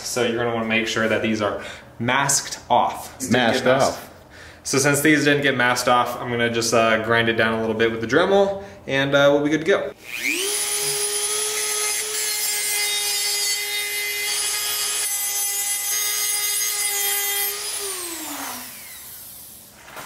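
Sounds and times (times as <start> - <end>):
rotary tool whining: 10.0 - 12.2, 15.8 - 19.6.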